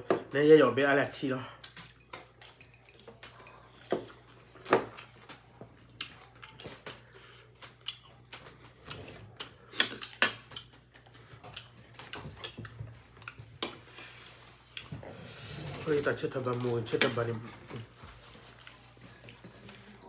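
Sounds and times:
wet chewing and mouth smacks: 0:01.6 - 0:14.9.

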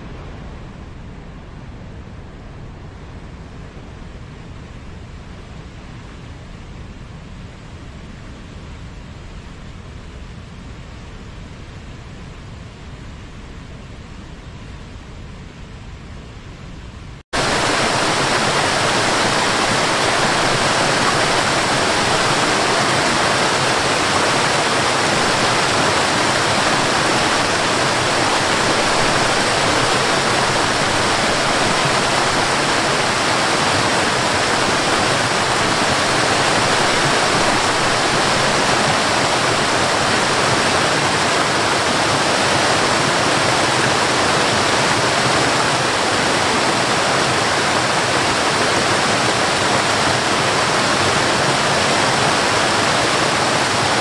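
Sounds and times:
waterfall rushing over rocks: 0:17.4 - 0:54.0.

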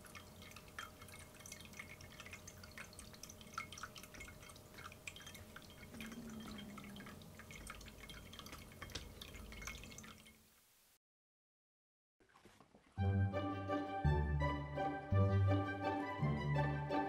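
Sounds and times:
low pump hum: 0:00.0 - 0:10.3
water drips and trickles: 0:00.0 - 0:10.6.

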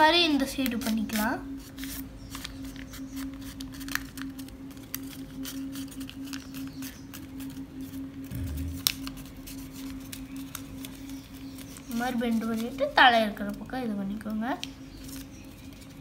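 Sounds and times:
paper crinkling and clicking: 0:00.5 - 0:08.0, 0:09.2 - 0:16.0
steady low hum: 0:03.2 - 0:16.0.

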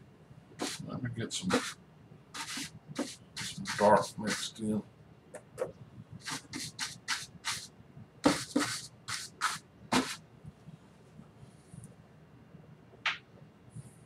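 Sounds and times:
brush scrubbing paint on canvas: 0:00.6 - 0:01.8, 0:02.4 - 0:04.6, 0:06.2 - 0:10.2.

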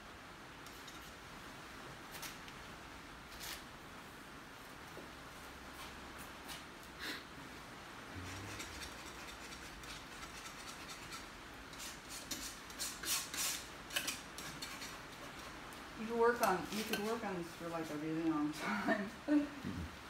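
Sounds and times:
scratchy paint strokes on canvas: 0:08.1 - 0:17.9.

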